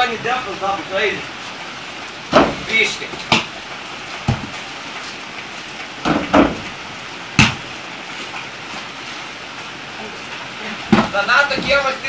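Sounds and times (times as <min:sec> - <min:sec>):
rain falling: 0:00.0 - 0:12.0
dull thud: 0:02.3 - 0:03.5, 0:04.2 - 0:04.6, 0:06.0 - 0:06.7, 0:07.4 - 0:07.6, 0:10.9 - 0:11.8
knocks: 0:02.3 - 0:03.5, 0:04.2 - 0:04.6, 0:06.0 - 0:06.7, 0:07.4 - 0:07.6, 0:10.9 - 0:11.9
ball slapping hands: 0:03.2 - 0:03.6, 0:07.4 - 0:07.7.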